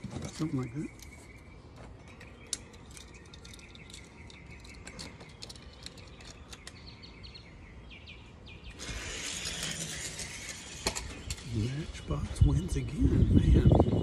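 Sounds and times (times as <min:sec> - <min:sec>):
birds chirping: 0:00.0 - 0:14.0
toy cars rolling down plastic track: 0:08.8 - 0:11.7.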